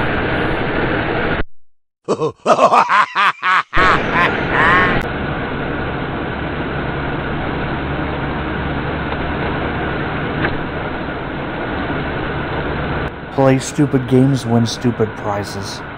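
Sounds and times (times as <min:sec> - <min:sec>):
truck engine and road noise: 0:00.0 - 0:01.4, 0:03.8 - 0:15.9
voice-like grunts and laughter: 0:02.0 - 0:05.0.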